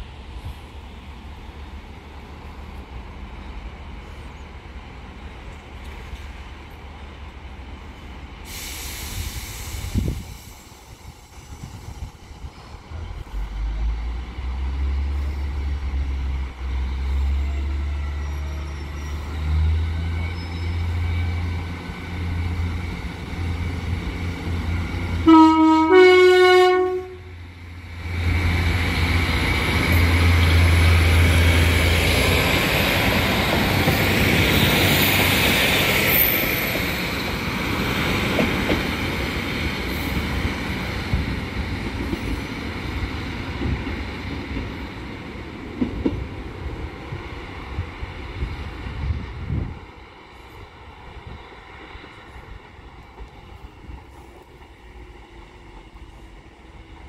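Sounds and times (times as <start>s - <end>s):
diesel train engine: 0.0s - 57.0s
train wheels on rails: 0.0s - 57.0s
two-tone train horn: 25.2s - 27.4s.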